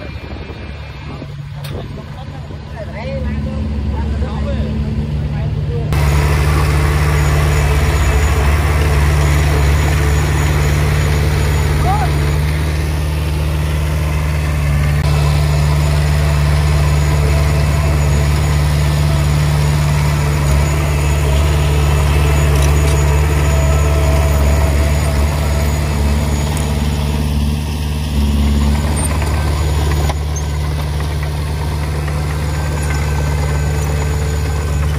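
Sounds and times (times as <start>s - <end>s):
bulldozer diesel engine drone: 0.0s - 34.9s.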